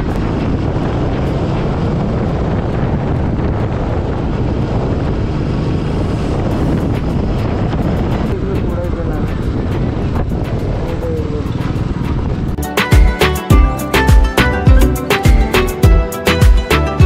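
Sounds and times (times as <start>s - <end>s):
motorbike engine: 0.0s - 12.6s
wind noise on microphone: 0.0s - 13.2s
road noise: 0.0s - 17.0s.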